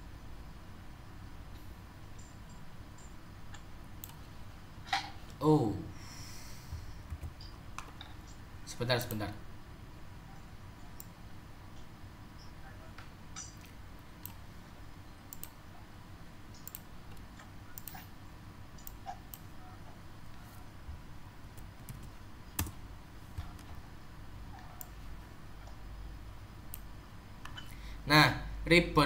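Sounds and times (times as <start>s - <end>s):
low steady hum: 0.0s - 29.0s
computer mouse clicking: 2.1s - 4.3s, 10.4s - 14.4s, 15.3s - 15.6s, 16.5s - 18.1s, 18.8s - 19.6s, 21.5s - 23.8s, 24.5s - 25.0s, 26.7s - 27.7s
keyboard keystrokes: 21.8s - 22.8s.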